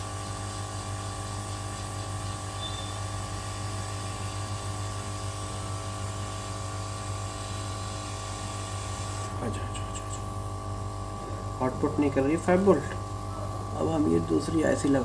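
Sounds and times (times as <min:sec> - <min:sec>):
hot air gun blowing: 0:00.0 - 0:09.6.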